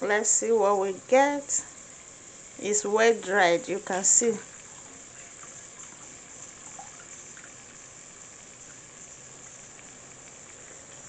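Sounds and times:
liquid trickling through strainer: 0:04.4 - 0:07.8.

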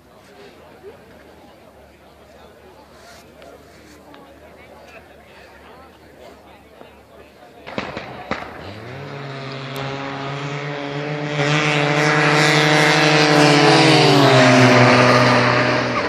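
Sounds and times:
snowmobile engines at full throttle: 0:08.2 - 0:16.0.

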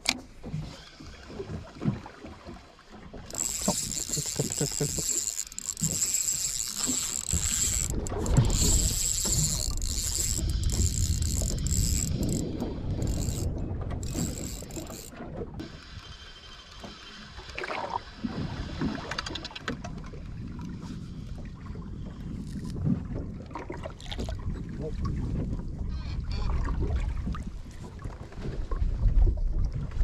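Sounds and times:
water noise: 0:00.0 - 0:30.0
wind: 0:00.0 - 0:30.0
fishing reel whirring and ticking: 0:03.2 - 0:17.6.

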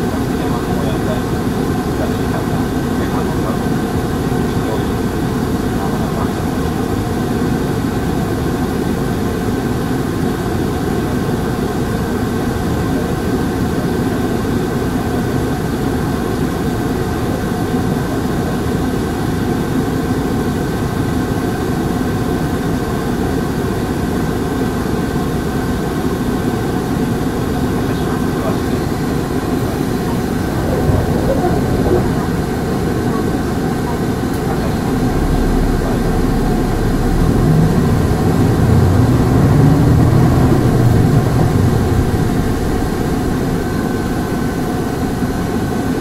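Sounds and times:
bus engine droning: 0:00.0 - 0:15.3, 0:23.8 - 0:46.0
faint steady whine: 0:27.4 - 0:46.0.

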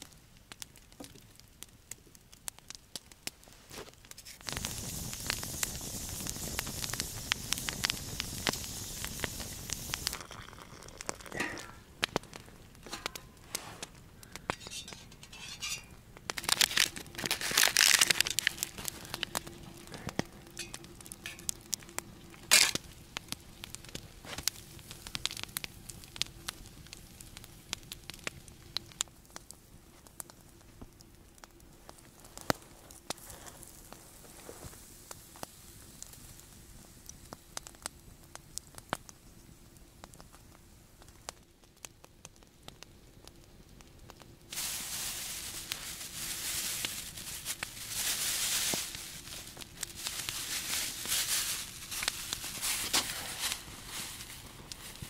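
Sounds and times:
campfire crackling: 0:00.0 - 0:55.0
sausage sizzling: 0:03.9 - 0:55.0
plastic crinkling: 0:10.0 - 0:26.6, 0:44.5 - 0:55.0
handling and clattering: 0:12.8 - 0:13.9, 0:14.5 - 0:18.9, 0:22.5 - 0:22.8.

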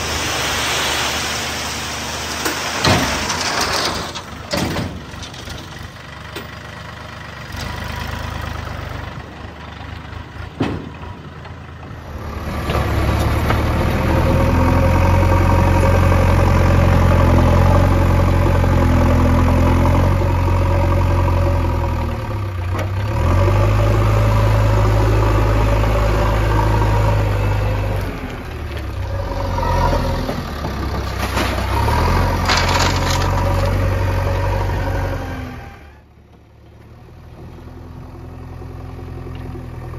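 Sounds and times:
backhoe loader diesel engine running: 0:00.0 - 0:39.9
tractor diesel engine idling: 0:04.2 - 0:12.4.

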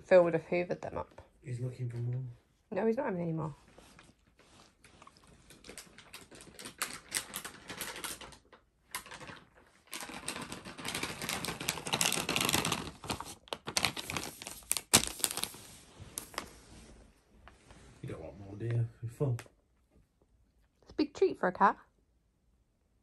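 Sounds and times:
foil packet crinkling: 0:05.4 - 0:16.5.

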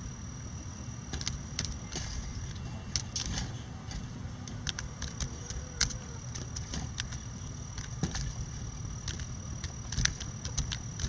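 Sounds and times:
low steady rumble: 0:00.0 - 0:11.0
chickens pecking beak taps: 0:04.6 - 0:11.0.

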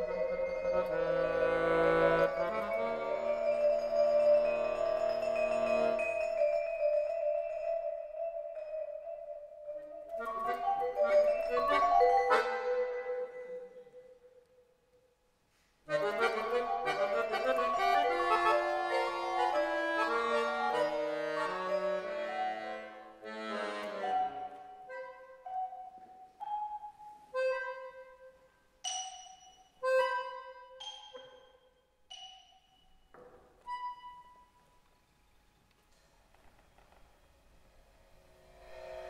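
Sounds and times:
accordion chords: 0:00.0 - 0:09.1, 0:09.8 - 0:14.0, 0:15.9 - 0:26.6, 0:27.3 - 0:28.5, 0:29.8 - 0:31.4
marimba: 0:00.0 - 0:14.2, 0:24.1 - 0:28.2.

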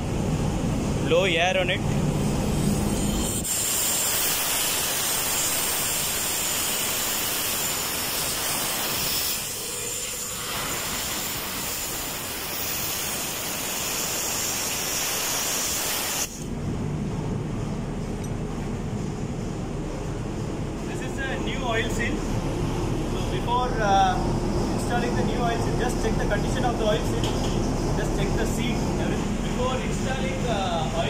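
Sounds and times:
compressed air hissing: 0:02.2 - 0:16.4.

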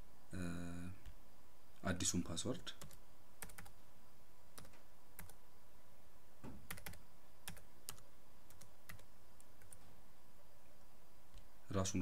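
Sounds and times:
keyboard keystrokes: 0:06.7 - 0:09.8.

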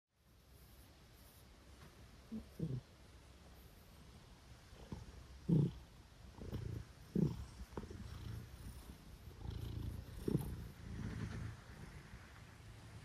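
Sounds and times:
cat purring: 0:02.2 - 0:13.0.

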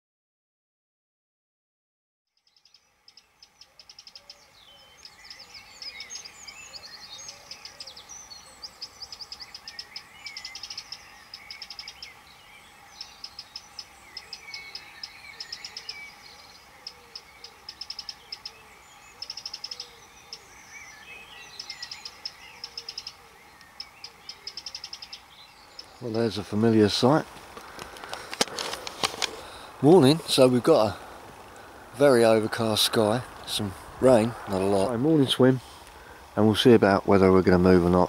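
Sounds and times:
bird chirps: 0:02.3 - 0:31.0
songbirds trilling: 0:02.3 - 0:38.0.

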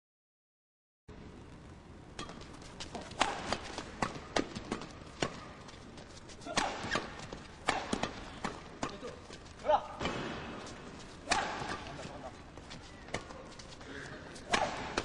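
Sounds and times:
rackets striking shuttlecock: 0:02.2 - 0:05.6, 0:06.5 - 0:09.2, 0:11.2 - 0:12.2
footsteps on court: 0:02.2 - 0:07.6.

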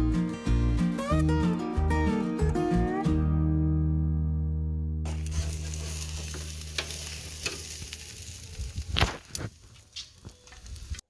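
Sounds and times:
meat sizzling on grill: 0:05.1 - 0:11.0
tongs clicking on grate: 0:06.3 - 0:07.7.

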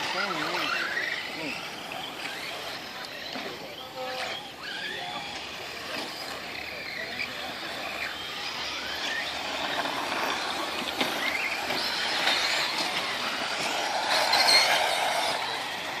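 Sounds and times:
electric rc car motors whining: 0:00.0 - 0:16.0
tyres on dirt: 0:00.0 - 0:16.0.

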